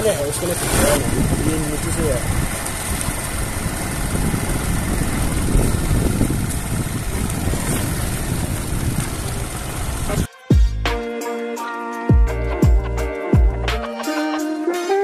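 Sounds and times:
wind rushing over microphone: 0:00.0 - 0:10.3
motorbike engine running: 0:00.0 - 0:10.7.

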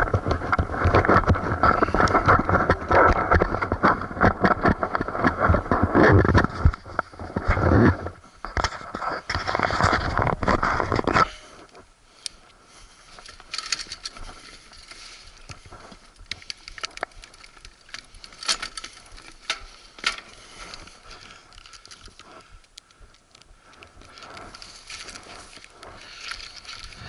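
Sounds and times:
footsteps crunching on dry dirt: 0:12.6 - 0:27.0.

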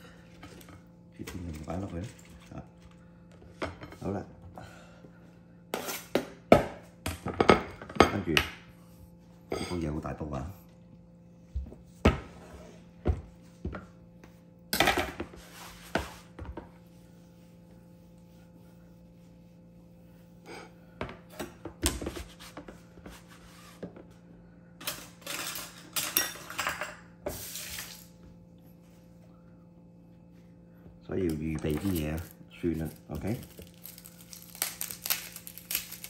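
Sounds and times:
faint steady hum: 0:00.0 - 0:36.0
kitchen utensils clinking and clattering: 0:24.8 - 0:28.0.

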